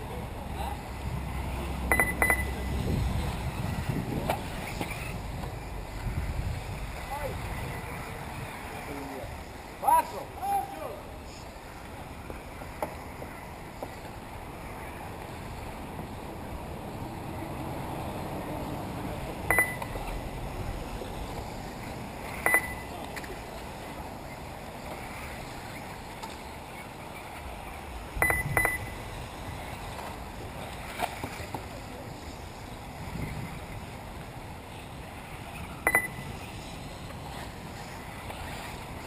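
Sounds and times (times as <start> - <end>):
short electronic beeps: 1.9 - 2.8, 19.5 - 20.0, 22.4 - 22.9, 28.2 - 29.0, 35.8 - 36.2.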